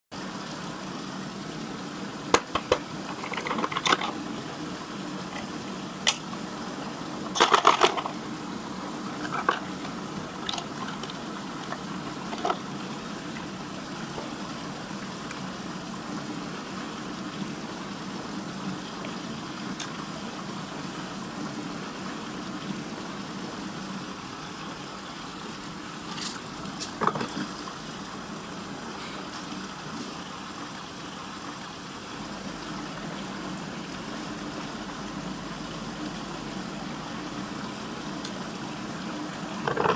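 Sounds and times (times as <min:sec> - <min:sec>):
splashing and plastic clatter: 0:02.3 - 0:04.2, 0:07.2 - 0:08.2, 0:09.2 - 0:12.7, 0:26.1 - 0:27.6, 0:39.6 - 0:39.9.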